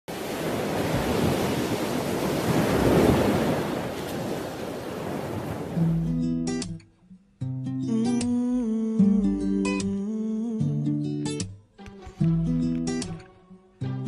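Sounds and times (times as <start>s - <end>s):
ocean surf rushing: 0.1s - 6.1s.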